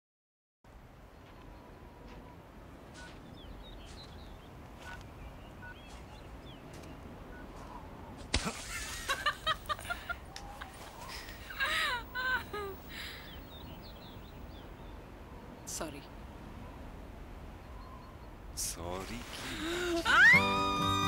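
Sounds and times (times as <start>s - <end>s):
faint bird chirps: 10.1s - 16.8s, 17.5s - 18.5s.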